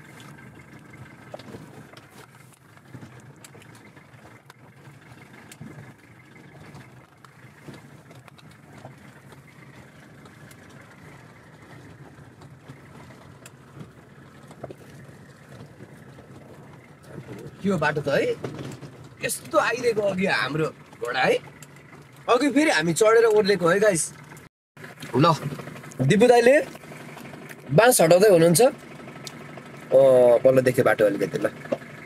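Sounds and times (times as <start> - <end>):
truck engine running at low speed: 0.0 - 32.0
small knocks and rattles: 0.2 - 19.6.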